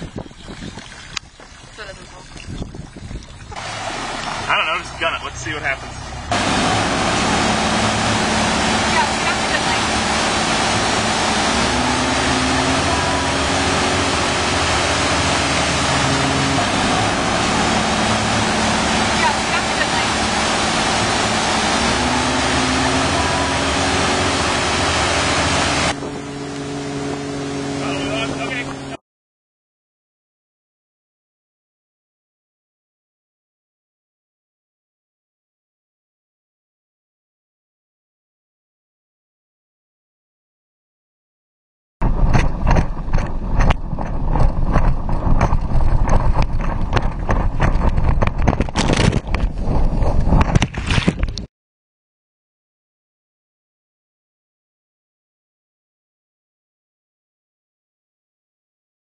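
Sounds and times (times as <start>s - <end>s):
rushing wind: 0.0s - 4.8s, 42.0s - 51.5s
boat engine running: 0.0s - 29.0s, 42.0s - 51.5s
churning wake: 0.0s - 29.0s, 42.0s - 51.5s.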